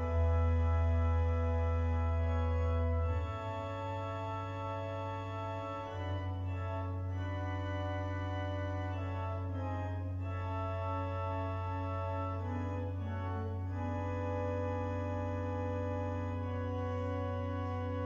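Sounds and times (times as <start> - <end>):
church organ chords: 0.0 - 18.0
low organ pedal note: 0.0 - 18.0.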